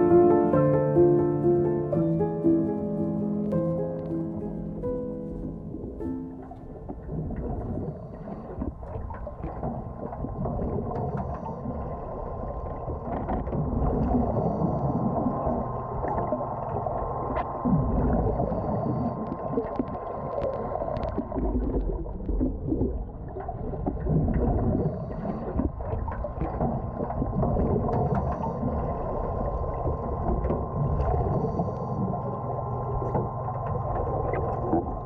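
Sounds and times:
underwater rumble of water: 0.0s - 35.0s
constant hum: 23.0s - 35.0s.

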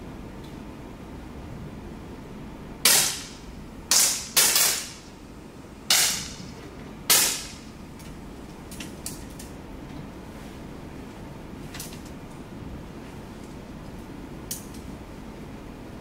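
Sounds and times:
air pistol shots echoing: 2.8s - 5.0s, 5.9s - 6.4s, 7.1s - 7.6s.

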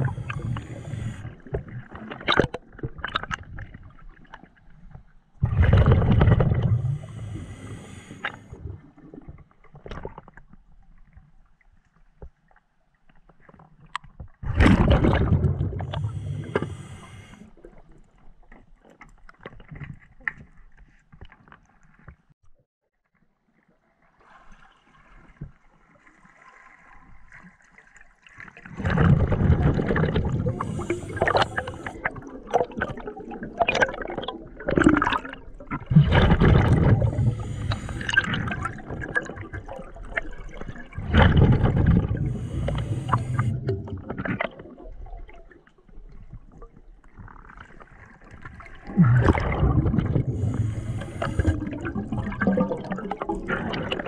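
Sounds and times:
exhaled bubbles from a regulator: 0.0s - 4.4s, 5.4s - 9.4s, 14.4s - 17.8s, 28.6s - 45.6s, 48.4s - 54.0s.

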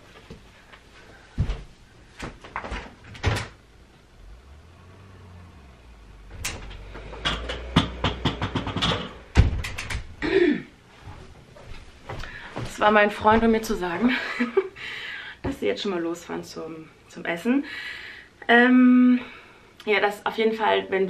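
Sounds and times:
footsteps: 0.0s - 2.7s, 10.9s - 14.0s
low steady rumble: 3.6s - 14.3s
dense clicks: 6.3s - 10.2s
door: 6.4s - 10.1s
knocks: 6.4s - 10.1s.

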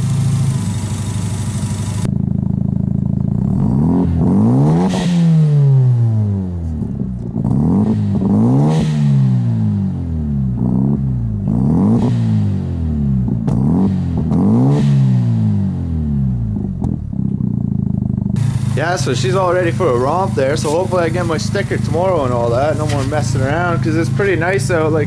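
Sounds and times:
rotary engine revving: 3.3s - 9.8s, 10.5s - 17.1s, 18.4s - 25.0s.

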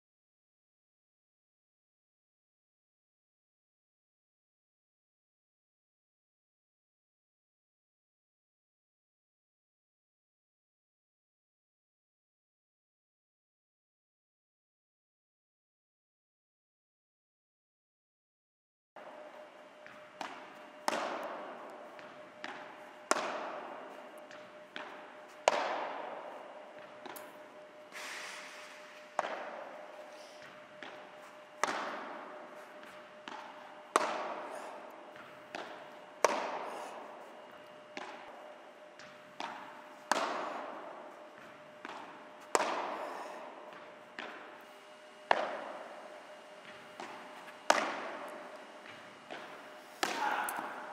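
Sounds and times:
faint steady hum: 19.0s - 50.9s.

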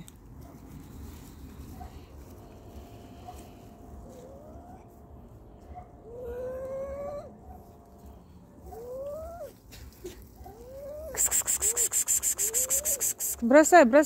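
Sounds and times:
fast even scratching: 11.1s - 13.5s.

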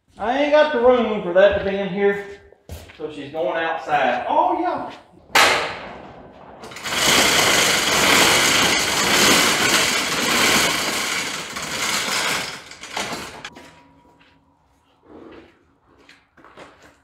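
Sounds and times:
overhead door rattling open: 5.3s - 13.5s.

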